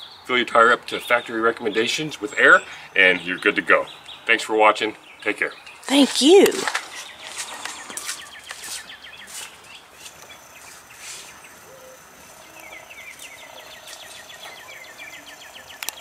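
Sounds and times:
outdoor background hiss: 0.0 - 16.0
bird trilling: 5.7 - 16.0.

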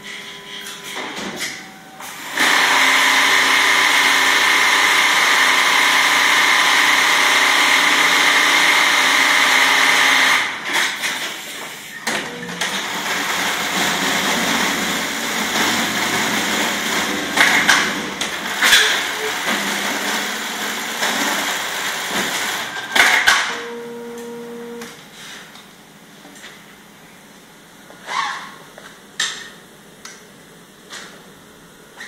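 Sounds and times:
sewing machine running: 2.2 - 11.4, 12.2 - 24.8.

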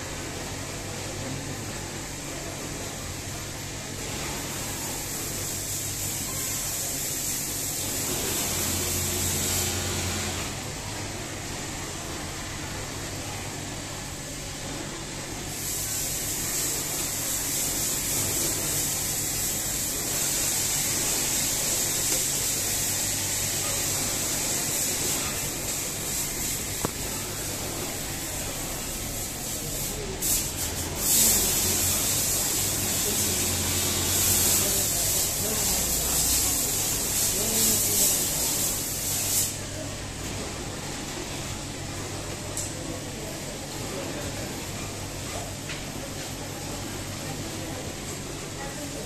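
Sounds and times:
sewing machine whirring: 6.6 - 10.9.

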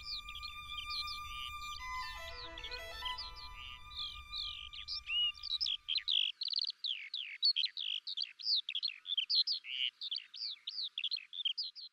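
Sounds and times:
background music: 0.0 - 6.0
skylark singing: 0.0 - 11.9.

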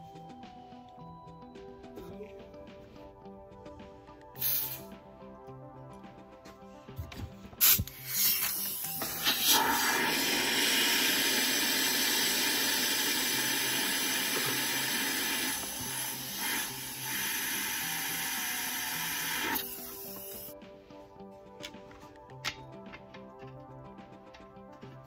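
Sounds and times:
compressed air hissing: 4.4 - 5.0, 7.6 - 20.6.

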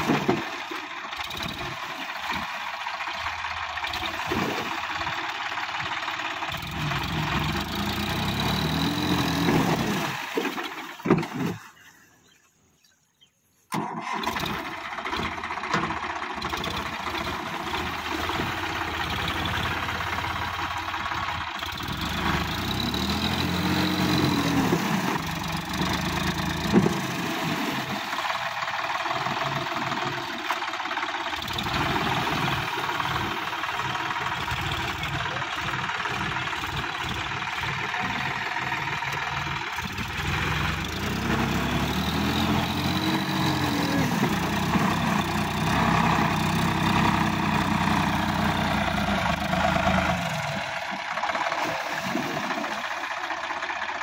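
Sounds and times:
tractor diesel engine under load: 0.0 - 12.1, 13.7 - 54.0.

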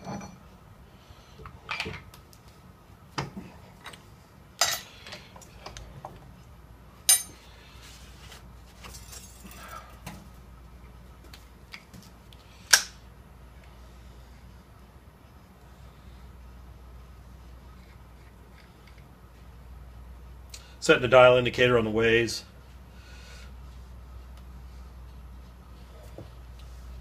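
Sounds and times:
metallic clinks and knocks: 0.0 - 0.4.

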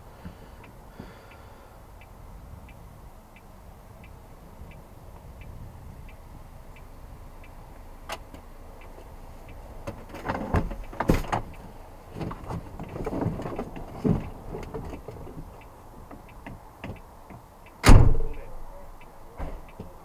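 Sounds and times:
knocks and clunks: 9.8 - 11.6, 12.2 - 15.5, 16.1 - 18.7, 19.4 - 20.0.

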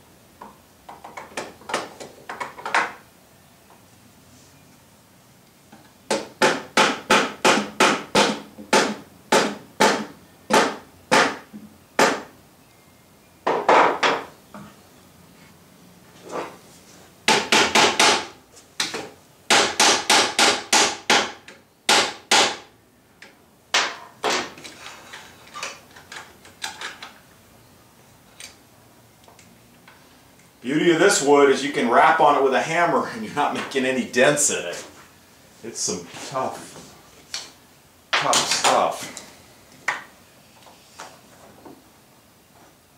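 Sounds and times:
hammer tapping on hard wood: 6.1 - 11.4, 12.0 - 12.3, 17.3 - 22.6.

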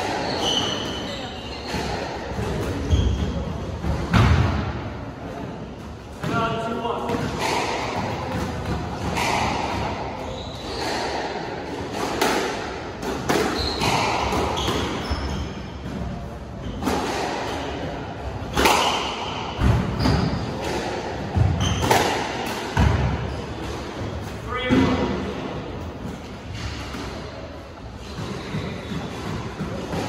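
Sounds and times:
shoes squeaking on wooden floor: 0.1 - 2.0, 10.2 - 11.1, 13.5 - 15.9, 27.9 - 30.0.

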